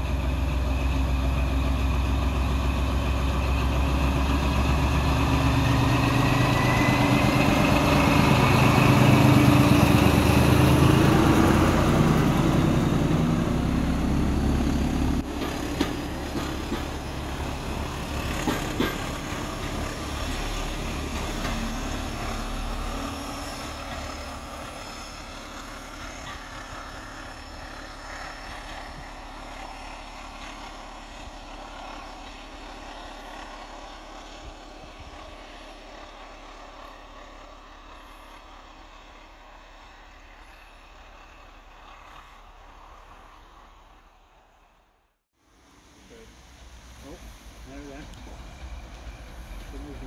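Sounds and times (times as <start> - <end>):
diesel locomotive engine rumbling: 0.0 - 50.0
train wheels clicking: 15.2 - 34.3.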